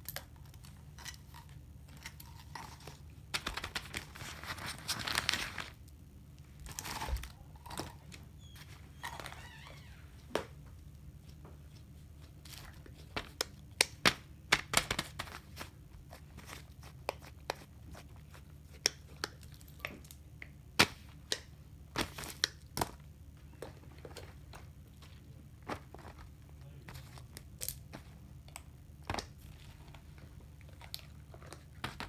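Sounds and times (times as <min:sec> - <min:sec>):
paper crinkling: 0:02.7 - 0:05.8.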